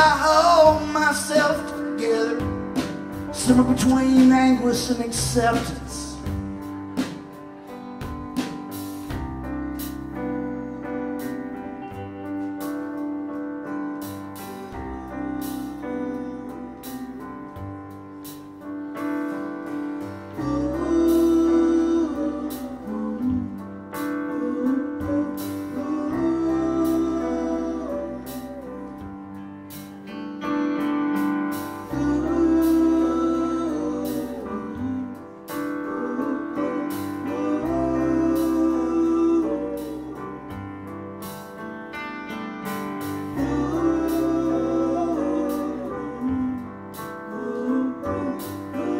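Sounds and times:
band playing slow song: 0.0s - 48.9s.

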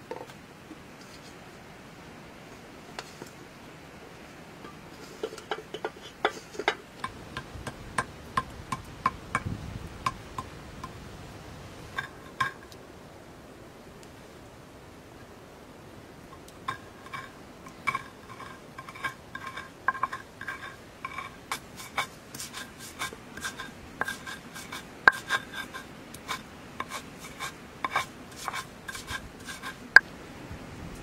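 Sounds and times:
low stone rubbing: 16.6s - 30.0s.

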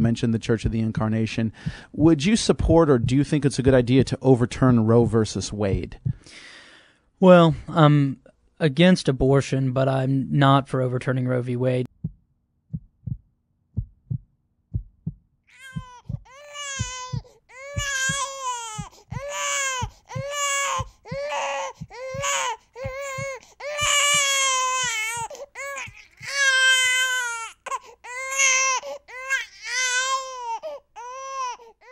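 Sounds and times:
heartbeat thumping: 0.6s - 6.3s, 11.9s - 27.1s
newborn baby crying: 15.5s - 31.9s.

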